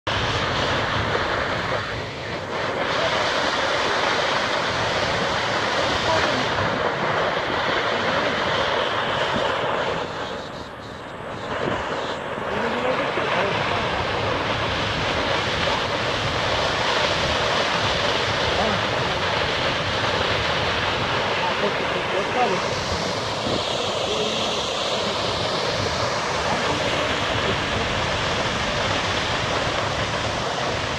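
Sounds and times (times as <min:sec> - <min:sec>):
waterfall rushing: 0:00.1 - 0:30.9.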